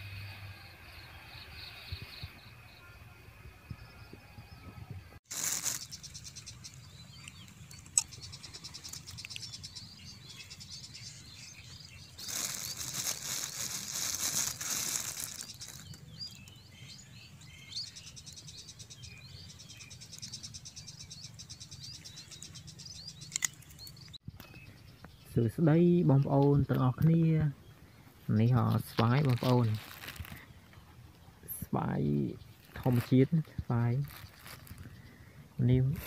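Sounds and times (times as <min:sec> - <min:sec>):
small birds chirping: 0:00.6 - 0:36.0
plastic bag crinkling: 0:05.3 - 0:06.4, 0:12.2 - 0:16.1, 0:29.2 - 0:30.5, 0:34.0 - 0:35.0
insects trilling: 0:05.3 - 0:11.2, 0:12.2 - 0:16.4.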